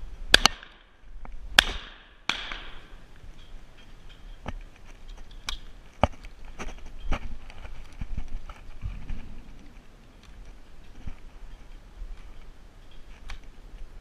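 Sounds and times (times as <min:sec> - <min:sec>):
shotgun shots: 0:01.6 - 0:02.9.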